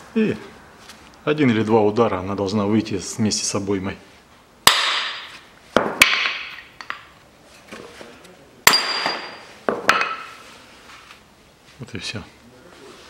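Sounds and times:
hammer striking metal: 0:04.7 - 0:07.0, 0:08.7 - 0:10.3.

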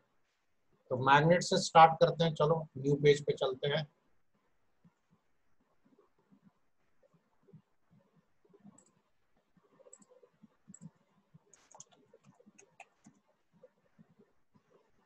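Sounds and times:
computer mouse clicks: 0:04.8 - 0:15.0
keyboard typing: 0:04.8 - 0:15.0.

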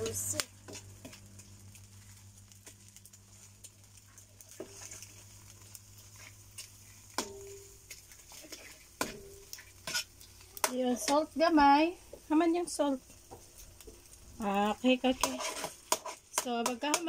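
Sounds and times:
faint sizzle: 0:00.0 - 0:17.0
metal ladle scraping a wok: 0:04.5 - 0:05.2, 0:06.1 - 0:10.3, 0:15.1 - 0:16.7.

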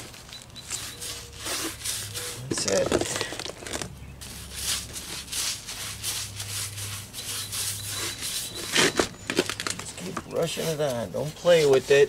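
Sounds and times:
paintbrush scrubbing concrete: 0:00.6 - 0:02.9, 0:04.2 - 0:08.9, 0:10.2 - 0:12.0.

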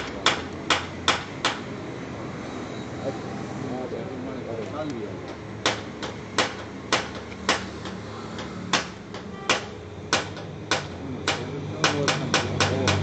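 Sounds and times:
sharp taps or knocks: 0:05.2 - 0:13.0.

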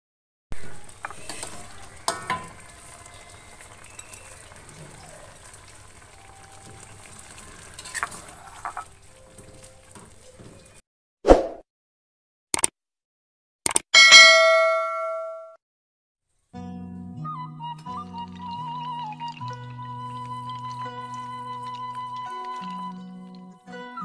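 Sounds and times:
sauce sizzling in a wok: 0:00.6 - 0:10.3.

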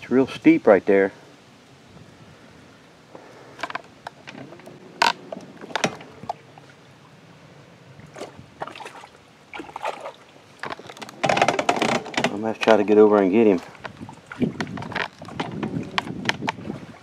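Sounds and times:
boat knocking and splashing: 0:03.7 - 0:07.0, 0:08.0 - 0:17.0.

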